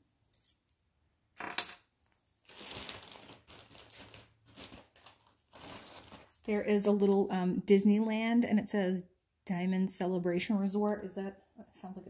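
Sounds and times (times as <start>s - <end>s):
metal jewelry clinking: 0.3s - 0.7s, 1.4s - 1.9s.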